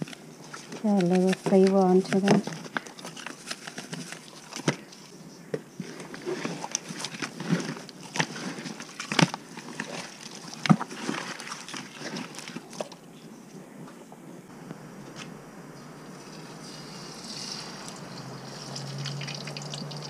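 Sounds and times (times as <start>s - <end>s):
wet fish slapping in plastic tub: 6.5s - 13.0s.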